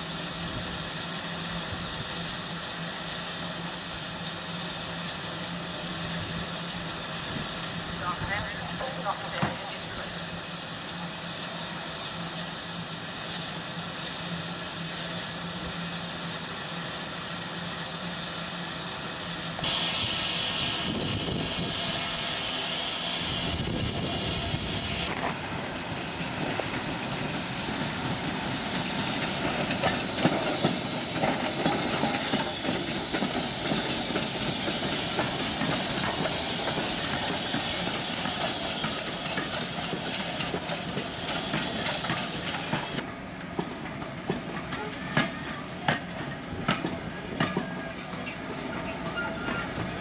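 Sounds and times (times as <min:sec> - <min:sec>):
steam hissing: 0:00.0 - 0:50.0
steam locomotive passing: 0:00.0 - 0:50.0
carriages clattering over rail joints: 0:26.3 - 0:50.0.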